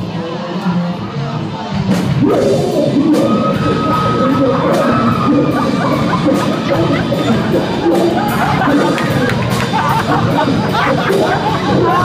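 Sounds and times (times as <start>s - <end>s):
live rock band playing: 0.0s - 12.0s
person singing loudly: 2.2s - 8.9s.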